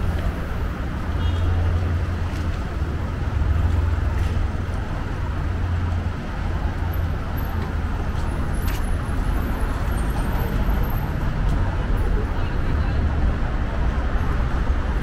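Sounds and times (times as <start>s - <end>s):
low rumble of traffic: 0.0s - 15.0s.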